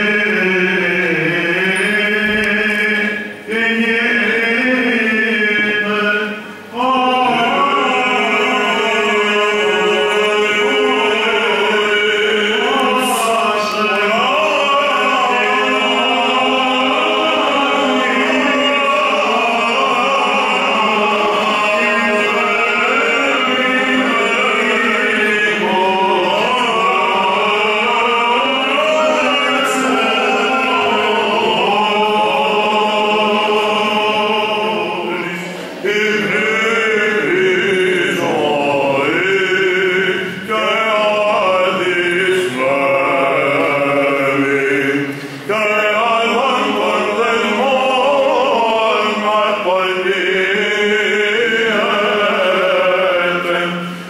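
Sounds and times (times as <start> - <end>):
group of voices chanting unaccompanied: 0.0 - 54.0.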